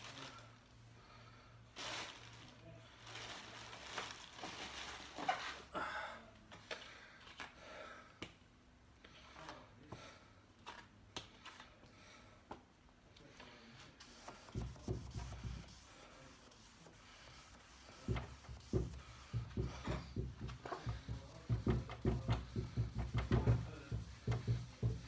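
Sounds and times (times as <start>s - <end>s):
buffing pad rubbing on wood: 14.0s - 25.0s.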